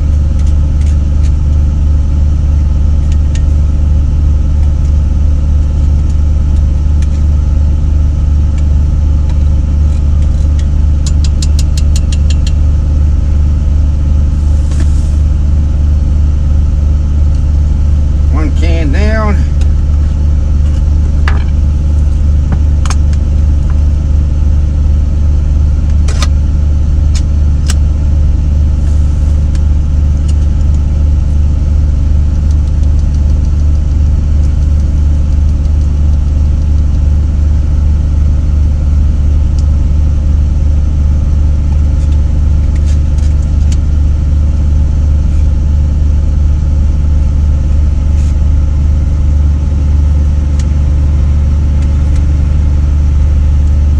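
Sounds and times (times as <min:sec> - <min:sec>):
diesel engine idling: 0:00.0 - 0:38.2.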